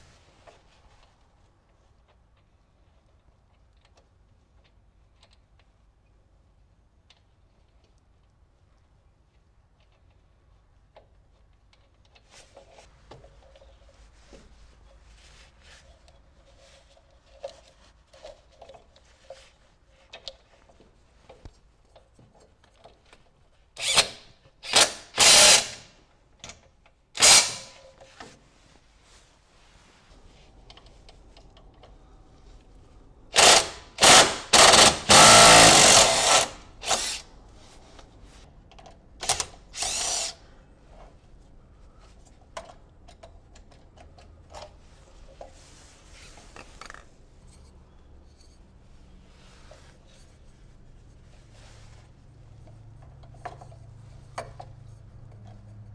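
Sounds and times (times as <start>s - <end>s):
impact driver bursts: 23.8s - 25.9s, 27.2s - 27.8s, 33.3s - 37.2s, 39.2s - 40.4s.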